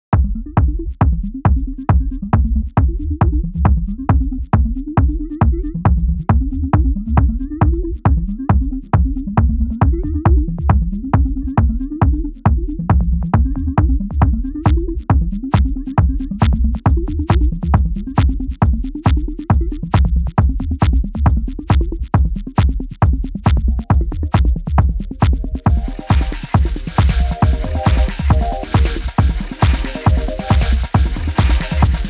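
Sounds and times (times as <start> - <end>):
bass line: 0.1 - 32.0
kick drum beat: 0.1 - 32.0
electronic dance music: 13.5 - 32.0.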